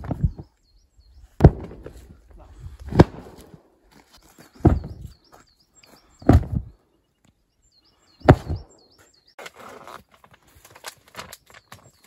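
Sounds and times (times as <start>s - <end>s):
small bird chirping: 0.1s - 1.4s, 4.2s - 9.4s.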